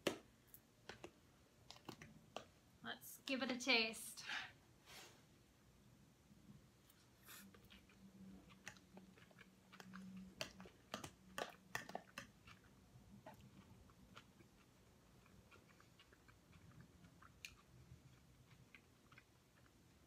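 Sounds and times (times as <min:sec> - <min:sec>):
chewing soft food: 0:06.8 - 0:20.0.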